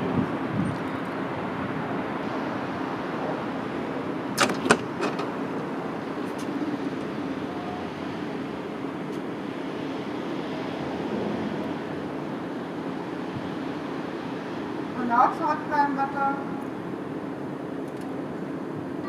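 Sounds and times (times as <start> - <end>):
electric train hum: 0.0 - 19.0
train door sliding clacks: 4.3 - 6.6.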